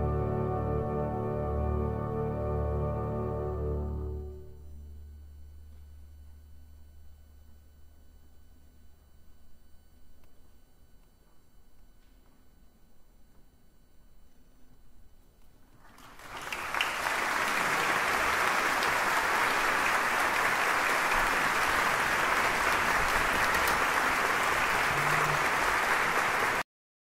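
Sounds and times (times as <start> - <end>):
audience applauding: 15.8 - 26.6.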